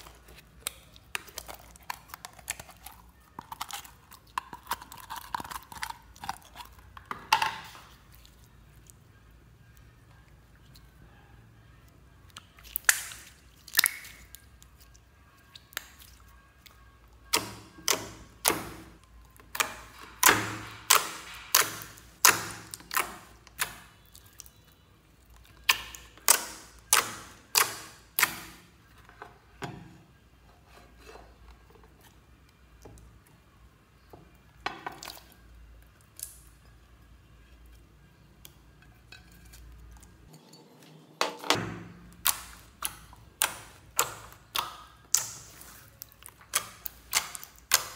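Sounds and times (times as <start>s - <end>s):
wet pops and clicks: 12.4s - 14.4s.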